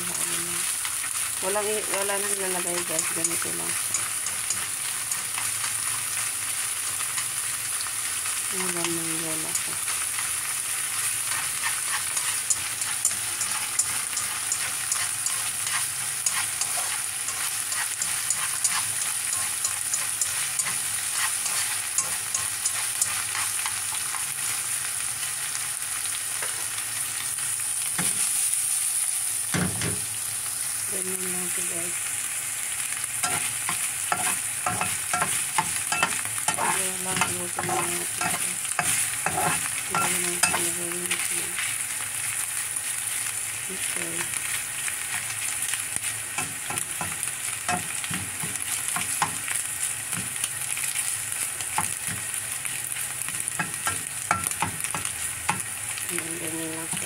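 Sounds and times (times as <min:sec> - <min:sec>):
food sizzling in oil: 0:00.0 - 0:57.0
utensil scraping wok: 0:00.2 - 0:07.6, 0:08.2 - 0:24.6, 0:33.2 - 0:41.8, 0:56.4 - 0:57.0.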